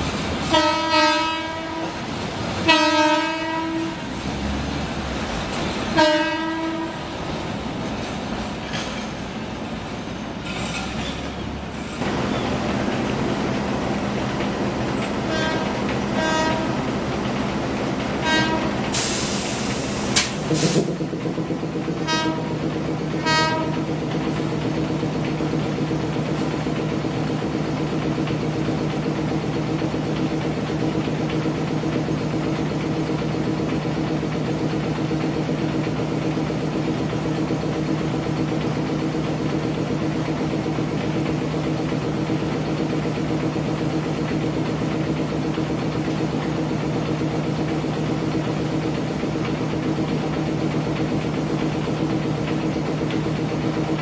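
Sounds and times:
railcar diesel engine running: 0.0 - 54.0
short train horn toot: 0.5 - 2.0, 2.6 - 4.1, 6.0 - 7.1, 15.2 - 16.8, 18.2 - 19.4, 22.0 - 22.6, 23.2 - 23.9.

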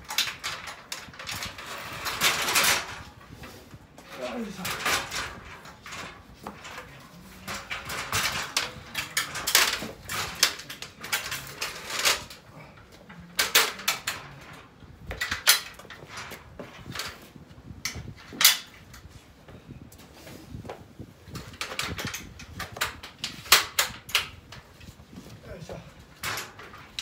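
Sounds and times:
metal stepladder clanking: 4.0 - 17.2.

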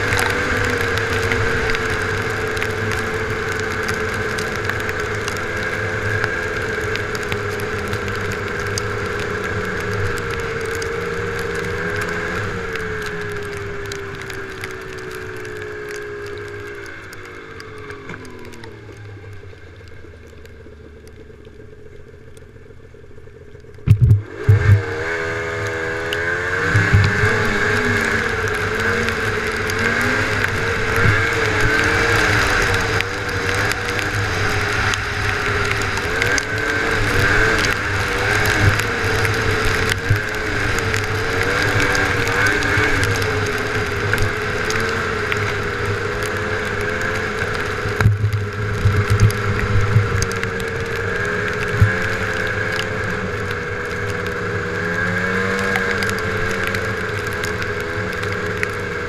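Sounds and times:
snowmobile engine: 0.0 - 19.8, 22.9 - 59.0
loud thumps: 23.8 - 24.8.

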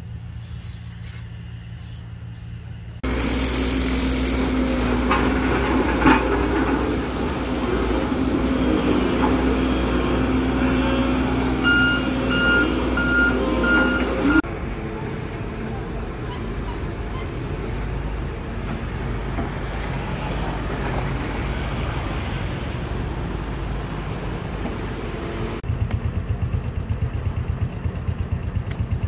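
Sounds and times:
road roller diesel engine humming: 0.0 - 29.0
reversing alarm beeps: 10.6 - 14.4.

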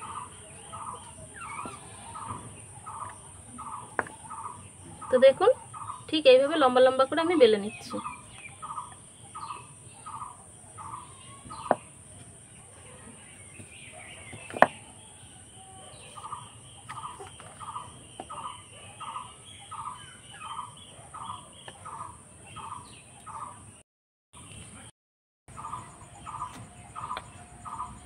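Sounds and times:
fowl calling: 0.0 - 6.1, 25.5 - 28.0.

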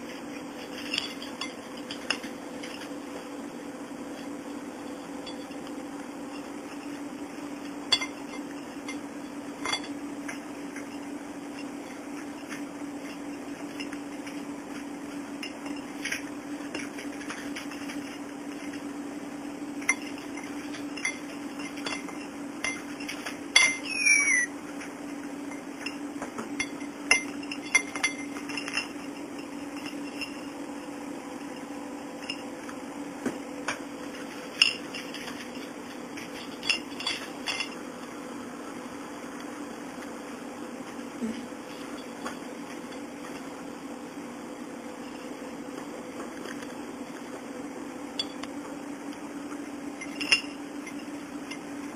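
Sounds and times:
plastic toys clinking on ceramic plate: 19.9 - 24.5
cockatiel chirp: 23.8 - 24.5.

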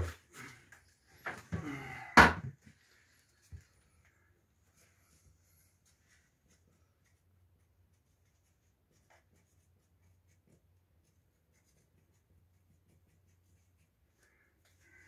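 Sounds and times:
marker scratching and squeaking: 8.0 - 15.0.

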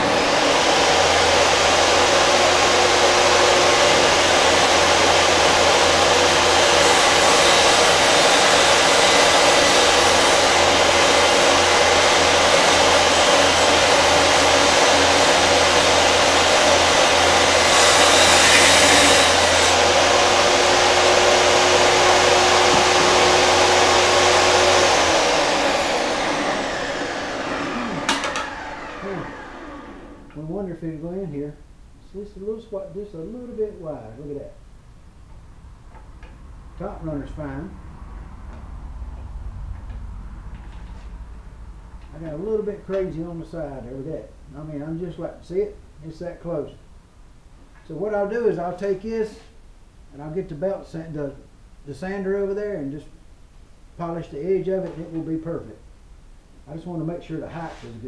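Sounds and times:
saw blade spinning down: 0.0 - 30.4
table saw running: 0.0 - 30.4.

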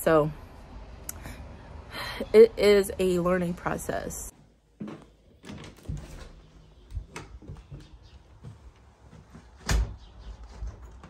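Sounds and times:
footsteps: 6.9 - 11.0.

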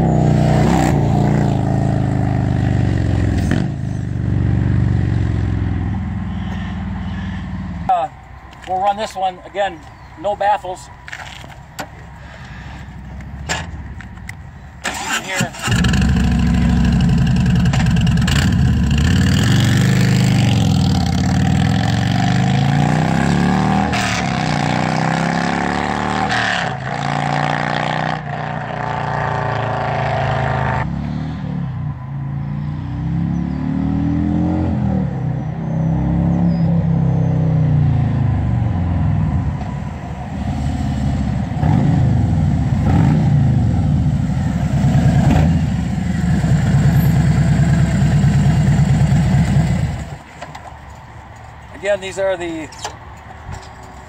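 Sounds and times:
motorcycle engine revving: 0.0 - 7.9, 14.9 - 31.6, 40.6 - 50.2.

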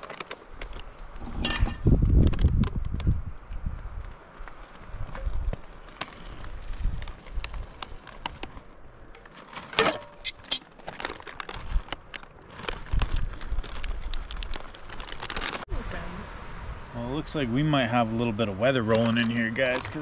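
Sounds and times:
foil pouch crinkling: 0.0 - 1.2, 4.4 - 15.7
low wind rumble: 0.4 - 9.2, 11.0 - 18.9.

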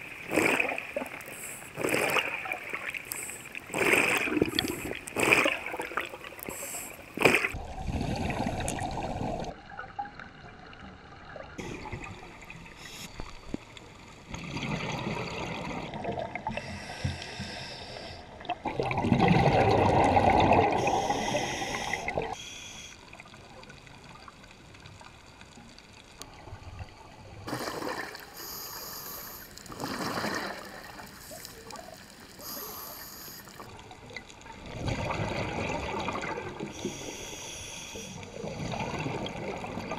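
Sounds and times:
exhaled bubbles gurgling underwater: 0.0 - 13.6, 14.2 - 16.9, 18.3 - 22.4, 26.2 - 37.2, 38.2 - 39.9
hissing regulator breaths: 1.2 - 1.8, 3.0 - 3.6, 6.4 - 7.2, 16.5 - 18.2, 20.8 - 23.0, 28.2 - 29.7, 31.0 - 33.7, 36.7 - 38.2.

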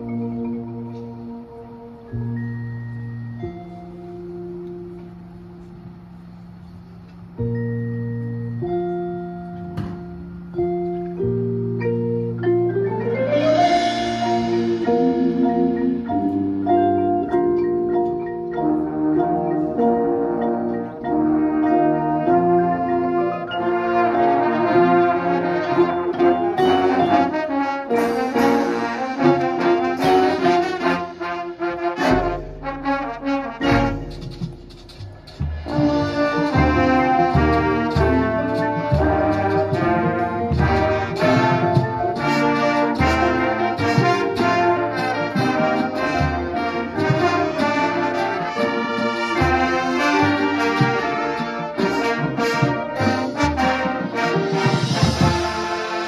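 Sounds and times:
marching band playing: 0.0 - 56.0.

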